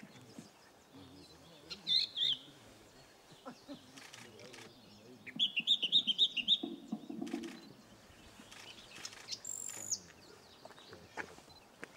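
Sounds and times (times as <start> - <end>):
bird singing sharp repeated notes: 1.0 - 2.6, 4.0 - 10.6.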